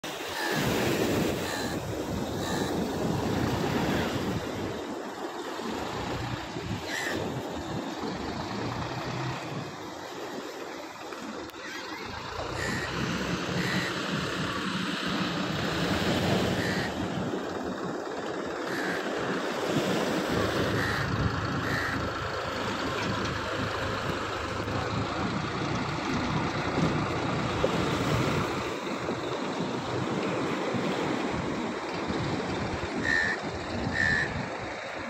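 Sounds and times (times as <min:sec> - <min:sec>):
tractor engine running: 0:00.0 - 0:35.0
wind buffeting microphone: 0:13.2 - 0:35.0.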